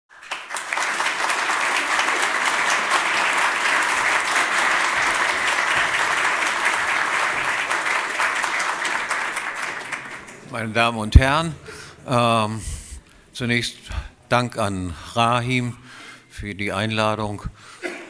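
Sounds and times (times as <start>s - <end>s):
audience applauding: 0.1s - 12.6s.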